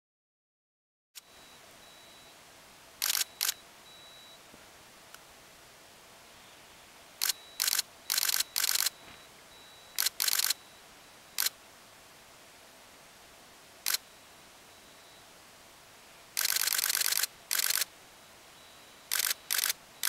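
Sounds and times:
camera shutter firing: 0:03.0 - 0:03.6, 0:07.2 - 0:09.0, 0:10.0 - 0:10.6, 0:11.4 - 0:11.6, 0:13.8 - 0:14.0, 0:16.4 - 0:17.9, 0:19.1 - 0:19.8.

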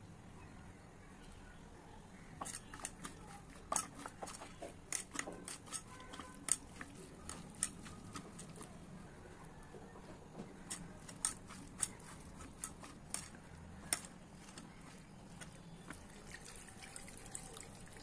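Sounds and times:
hand mixing food squelching: 0:02.2 - 0:18.0.

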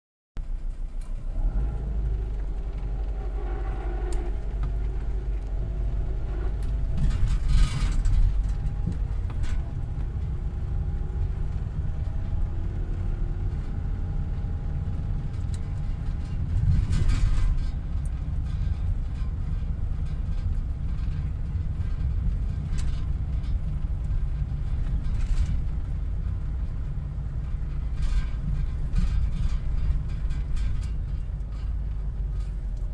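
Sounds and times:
engine and road rumble: 0:00.4 - 0:32.9
faint creaks: 0:02.3 - 0:09.9.

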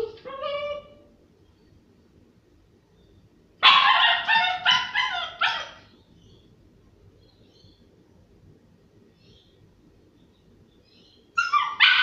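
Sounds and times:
high-pitched dog barks: 0:03.6 - 0:05.9, 0:11.4 - 0:12.0
small dog whining: 0:11.4 - 0:12.0.

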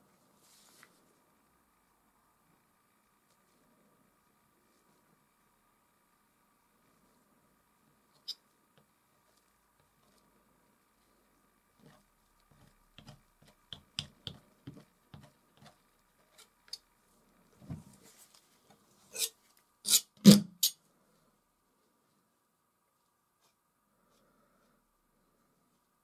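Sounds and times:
palette knife taps and clicks: 0:13.7 - 0:14.8.

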